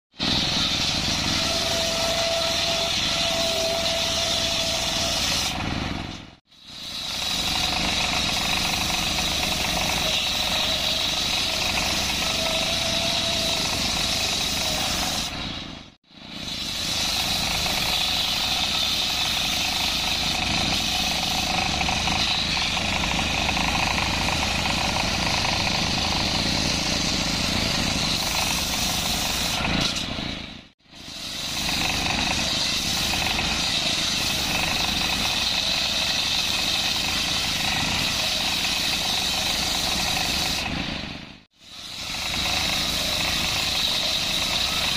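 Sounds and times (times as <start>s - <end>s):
circular saw whine cutting wood: 0.2s - 30.1s, 31.0s - 40.9s, 41.6s - 44.9s
diesel engine running: 7.1s - 30.7s.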